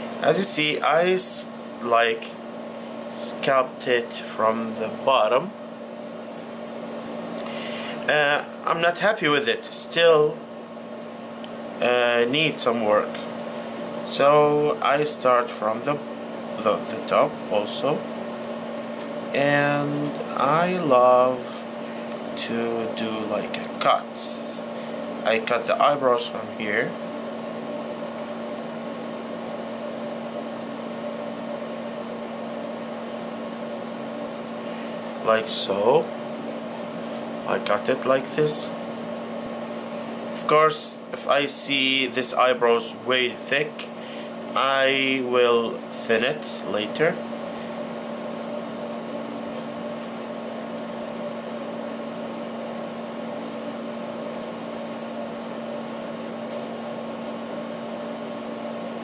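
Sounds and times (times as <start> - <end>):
appliance machine hum: 0.0 - 59.0.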